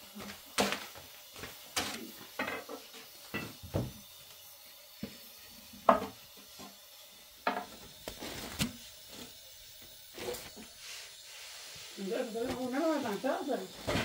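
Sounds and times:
rustle of flatbread sheets: 8.0s - 9.4s, 10.1s - 14.0s.

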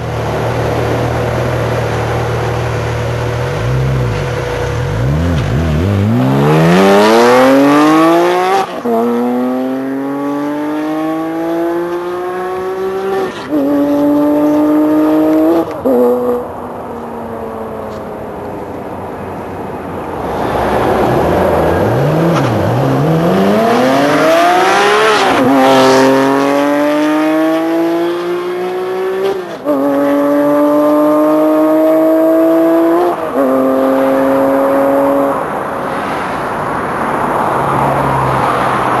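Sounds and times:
car passing close: 0.0s - 39.0s
sports car accelerating through gears: 2.8s - 16.4s, 20.2s - 36.4s.

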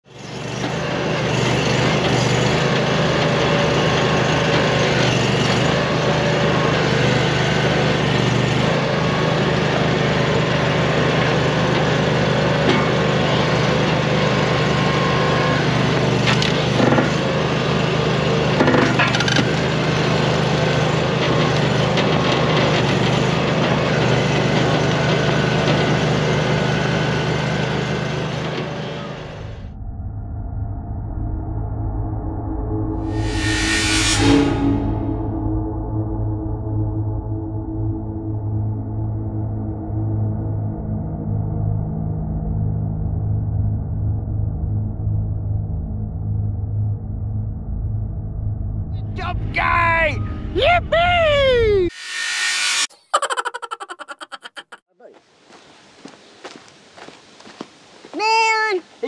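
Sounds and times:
log splitter engine running: 0.1s - 29.5s.

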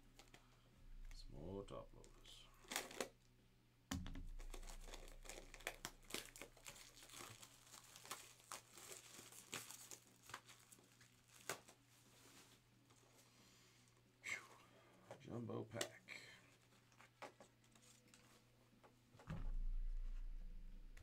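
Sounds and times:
plastic wrap crinkling and tearing: 2.5s - 3.2s, 4.2s - 12.6s.

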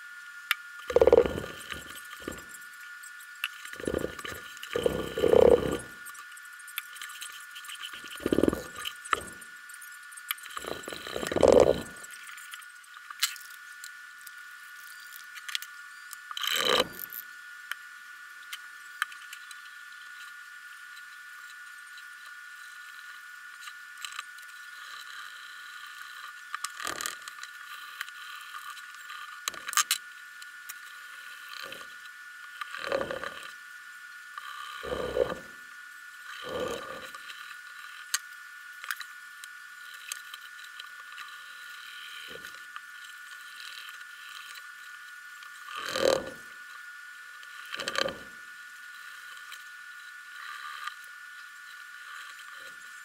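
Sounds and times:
faint high hum: 0.0s - 53.0s
knocks clicks and scrapes on wood: 0.9s - 2.4s, 10.6s - 12.0s.

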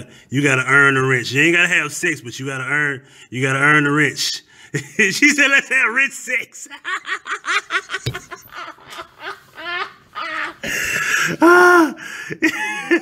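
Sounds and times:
man laughing hard: 6.7s - 13.0s.

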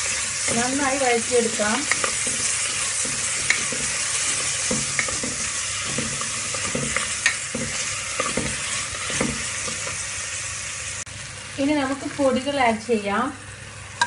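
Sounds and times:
wooden spatula scraping pot: 0.0s - 10.0s
vegetables sizzling in hot oil: 0.0s - 14.0s.

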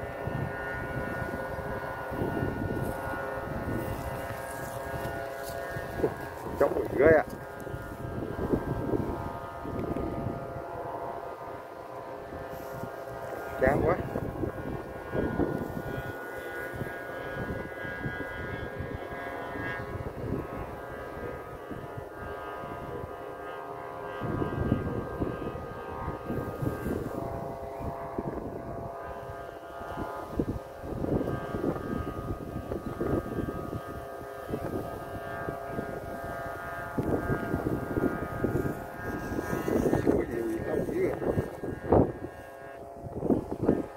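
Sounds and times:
drone of held pitches: 0.0s - 43.9s
gusty wind on microphone: 0.0s - 43.9s.

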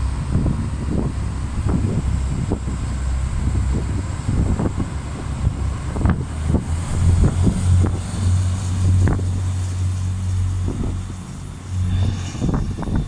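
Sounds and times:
diesel train passing: 0.0s - 13.0s
wind buffeting microphone: 0.0s - 13.0s.

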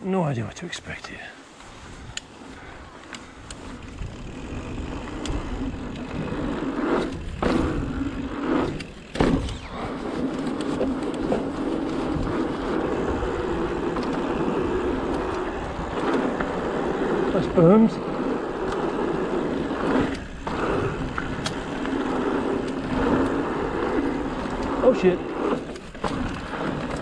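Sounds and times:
bike tyres rolling over dirt: 1.2s - 27.0s
wind rumbling on microphone: 1.6s - 27.0s
bike landing jolt: 6.7s - 12.4s.

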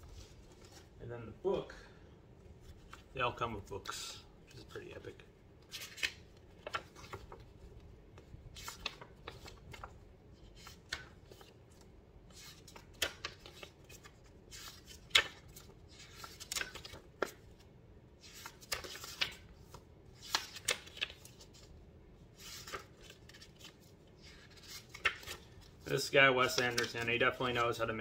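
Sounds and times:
paper pages rustling: 0.0s - 1.0s, 2.6s - 3.1s, 5.7s - 17.6s, 18.2s - 21.7s, 22.4s - 27.9s.

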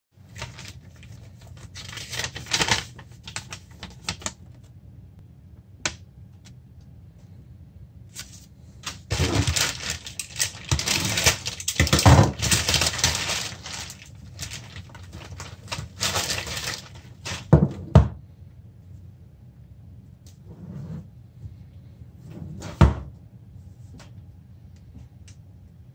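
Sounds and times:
plastic bag crinkling: 0.2s - 4.5s, 8.2s - 17.6s
paper rustling: 0.2s - 4.7s, 8.1s - 17.6s.

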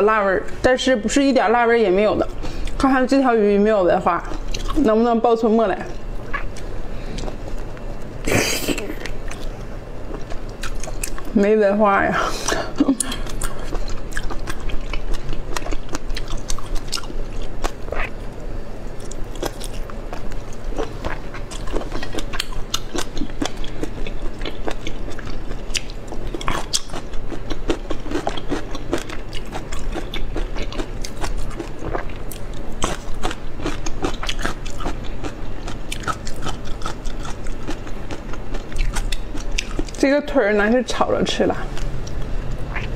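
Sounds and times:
wet chewing and mouth smacks: 19.0s - 40.0s, 41.7s - 42.9s.

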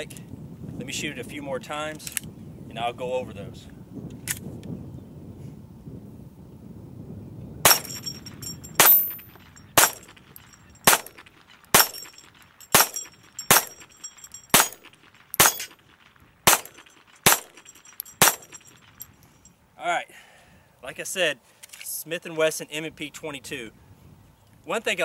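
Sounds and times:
high ringing: 7.7s - 11.2s, 11.8s - 15.8s, 16.5s - 19.5s
pistol shots: 9.8s - 10.1s, 10.8s - 12.1s, 12.7s - 13.8s, 14.5s - 15.8s, 16.4s - 18.6s.

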